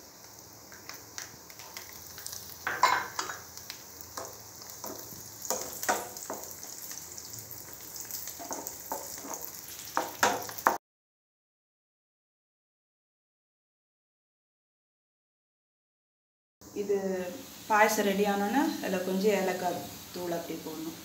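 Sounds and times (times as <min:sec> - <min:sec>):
nuts sizzling in hot fat: 0:00.0 - 0:10.8, 0:16.6 - 0:21.0.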